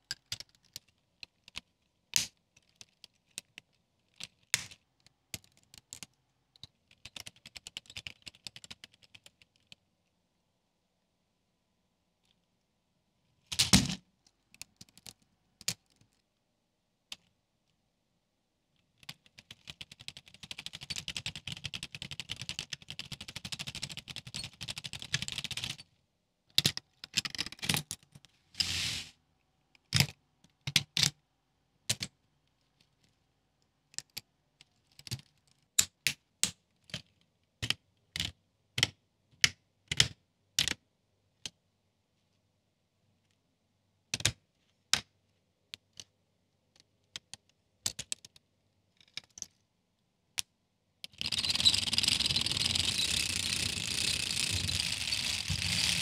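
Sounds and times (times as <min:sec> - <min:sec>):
plastic parts clicking together: 0:49.0 - 0:49.6.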